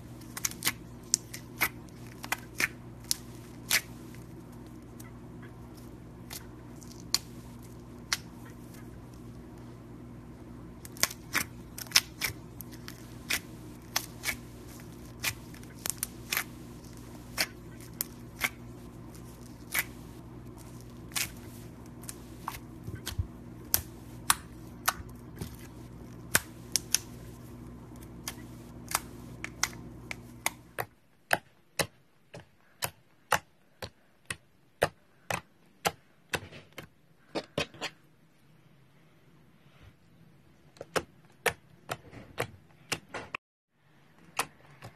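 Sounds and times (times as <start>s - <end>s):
steady low hum: 0.0s - 31.1s.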